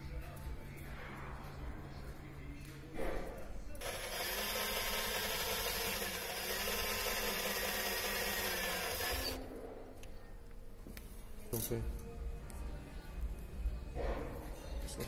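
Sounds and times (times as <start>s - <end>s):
cordless drill boring into metal: 3.8s - 9.4s.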